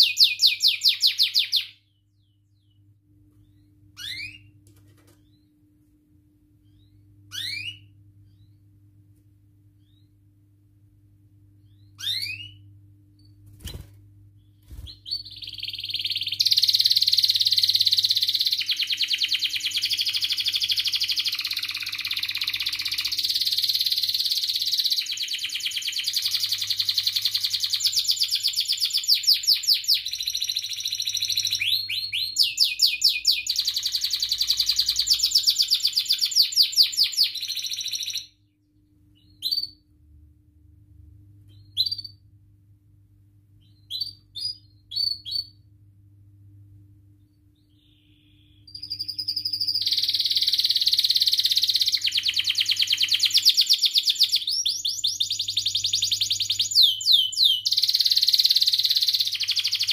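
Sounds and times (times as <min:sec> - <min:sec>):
canary singing trills: 0:00.0 - 0:04.5, 0:06.6 - 0:08.6, 0:11.6 - 0:13.8, 0:14.4 - 0:38.3, 0:41.5 - 0:42.2, 0:43.6 - 0:45.6, 0:47.6 - 0:59.9
canary chirps: 0:00.0 - 0:05.6, 0:06.6 - 0:08.7, 0:09.7 - 0:10.3, 0:11.6 - 0:13.8, 0:14.4 - 0:38.4, 0:39.1 - 0:39.9, 0:41.5 - 0:42.3, 0:43.6 - 0:45.7, 0:47.3 - 0:59.9
faint low hum: 0:00.0 - 0:59.9.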